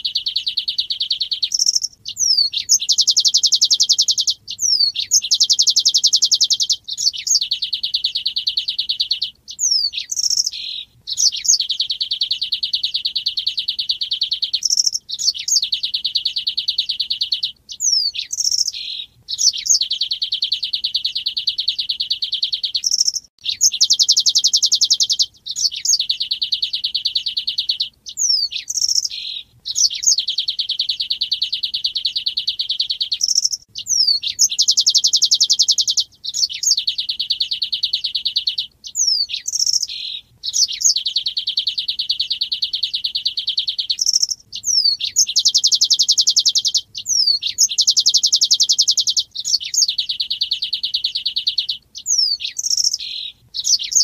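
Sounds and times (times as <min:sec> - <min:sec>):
bird sharp sliding chirps: 0:00.0 - 0:08.3, 0:09.0 - 0:13.6, 0:14.6 - 0:21.8, 0:28.1 - 0:30.6, 0:52.0 - 0:54.0
bird buzzy trills: 0:00.0 - 0:54.0.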